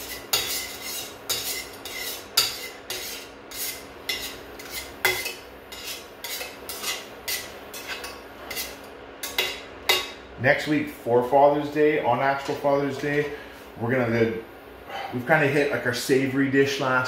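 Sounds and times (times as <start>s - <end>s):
metal utensil stirring in bowl: 0.0s - 10.1s.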